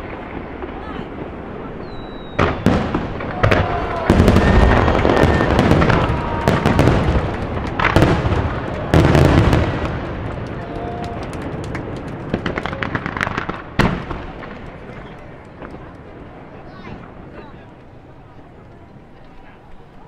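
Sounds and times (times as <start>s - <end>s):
booming firework volleys: 0.0s - 20.0s
firework crackle: 0.0s - 20.0s.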